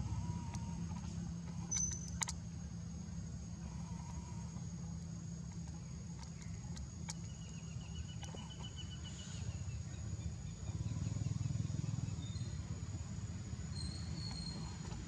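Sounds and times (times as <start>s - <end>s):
rapid trill of high ticks: 0.1s - 2.5s, 3.6s - 9.1s
faint clicks: 5.5s - 8.7s.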